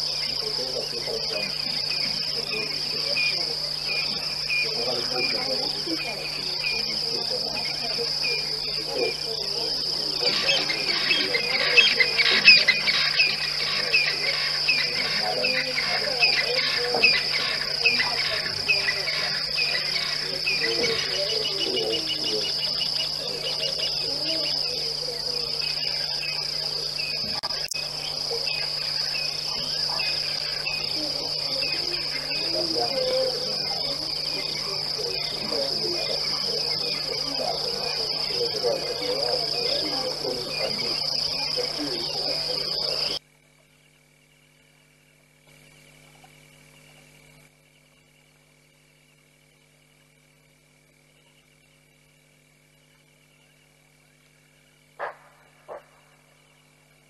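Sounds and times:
bird chirping: 0.0 - 43.2
insect chorus trilling: 0.0 - 57.0.

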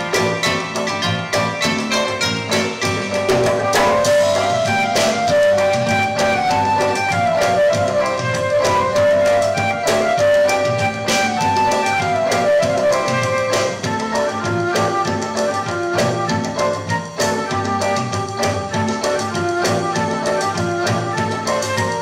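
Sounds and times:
melody: 0.0 - 14.4
drum and percussion beat: 0.0 - 22.0.

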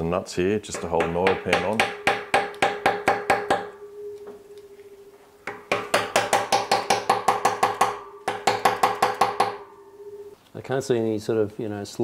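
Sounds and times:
hammer tapping on metal: 0.7 - 3.8, 5.4 - 9.7.

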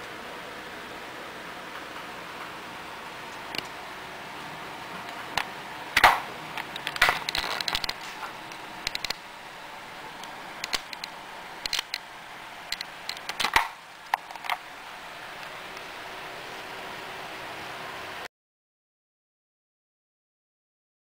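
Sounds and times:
steady hiss: 0.0 - 18.3.

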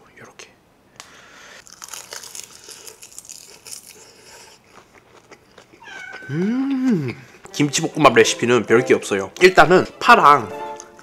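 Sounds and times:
crunchy chewing: 1.6 - 7.5.

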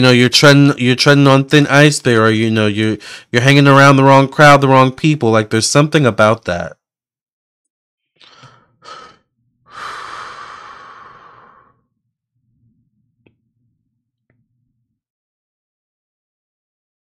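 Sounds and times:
woman breathing in: 8.2 - 11.9.

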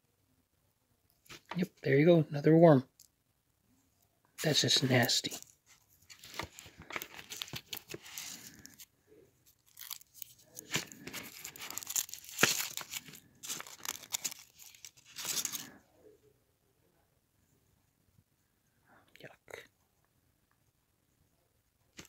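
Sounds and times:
foil wrapper crinkling: 6.1 - 8.8, 9.5 - 15.7.

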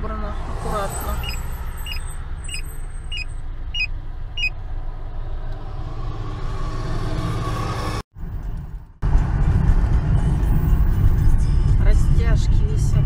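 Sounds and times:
car engine and road rumble: 0.0 - 13.0
turn signal ticking: 1.2 - 4.6.

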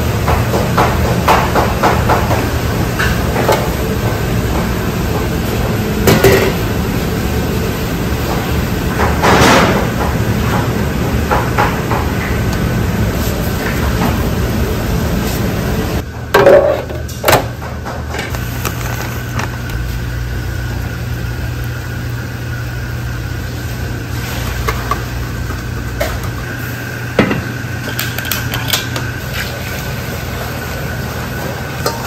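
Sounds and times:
low machine hum: 0.0 - 32.0
metal pots and utensils clanking: 6.0 - 6.6, 27.2 - 29.5, 31.8 - 32.0.

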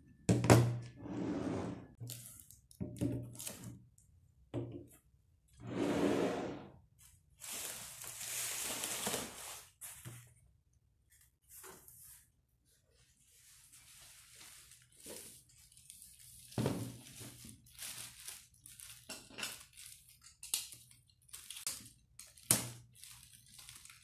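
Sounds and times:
packing material rustling in a box: 7.0 - 10.1, 13.4 - 24.0.

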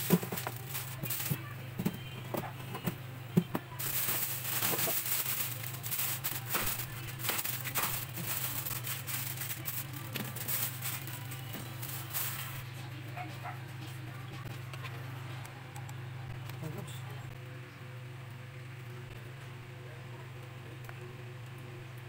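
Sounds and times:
steady low hum: 0.0 - 22.0
batter sizzling on hot plates: 3.7 - 12.6.

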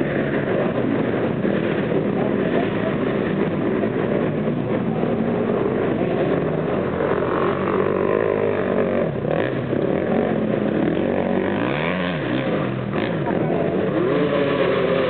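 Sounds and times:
dirt bike engine revving: 5.3 - 15.0.

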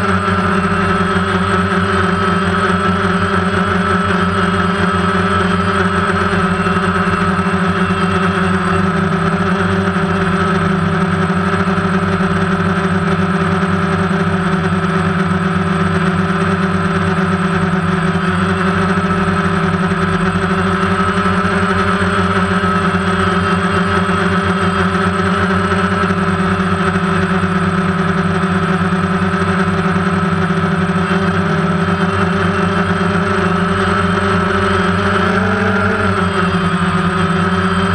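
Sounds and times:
drone motors humming: 0.0 - 37.9.

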